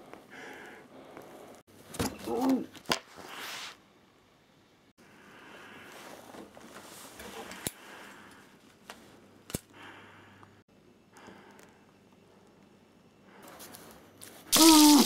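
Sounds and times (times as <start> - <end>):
faint rustling and handling: 5.6 - 9.3, 13.4 - 14.5.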